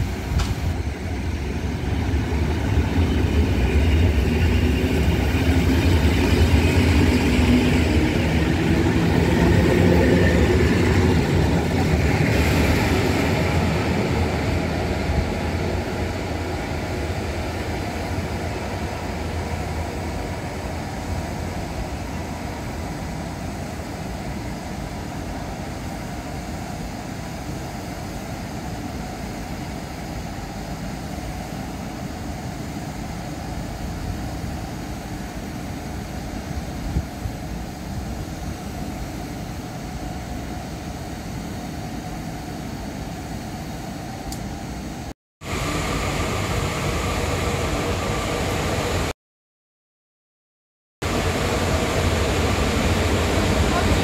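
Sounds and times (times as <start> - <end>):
freight locomotive rumble: 0.0 - 44.7, 45.4 - 49.1, 51.0 - 54.0
electric train rumble and hum: 0.0 - 49.2, 51.0 - 54.0.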